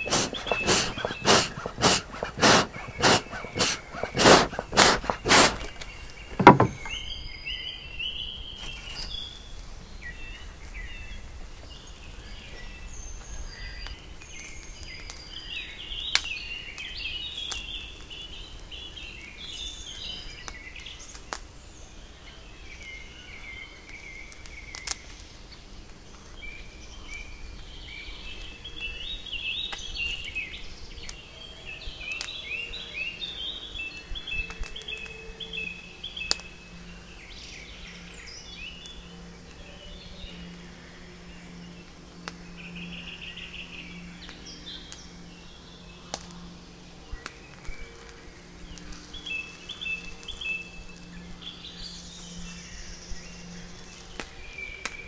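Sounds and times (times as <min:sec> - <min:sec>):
fast loud strokes: 0:00.0 - 0:05.7, 0:06.4 - 0:06.9
songbirds chirping and singing: 0:00.0 - 0:09.4, 0:21.8 - 0:55.0
quiet outdoor ambience: 0:00.0 - 0:55.0.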